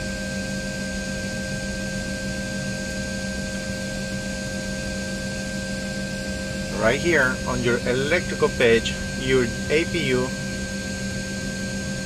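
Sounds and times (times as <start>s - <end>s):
cockpit mechanical hum: 0.0s - 12.0s
constant whining tones: 5.9s - 12.0s.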